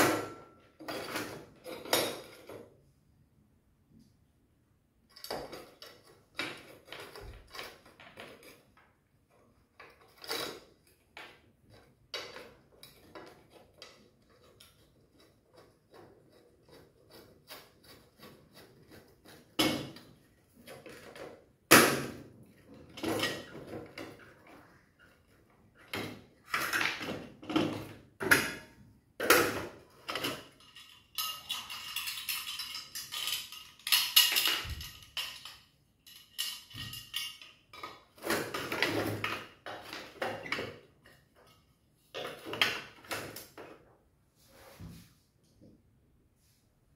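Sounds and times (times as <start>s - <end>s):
metallic clinks and knocks: 22.5s - 43.5s.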